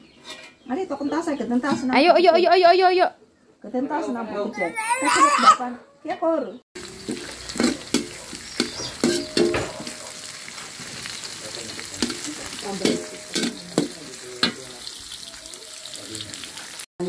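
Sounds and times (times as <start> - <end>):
metal spatula scraping a wok: 0.1 - 0.7, 6.8 - 11.3, 12.0 - 15.0
vegetables sizzling in hot oil: 6.8 - 16.9.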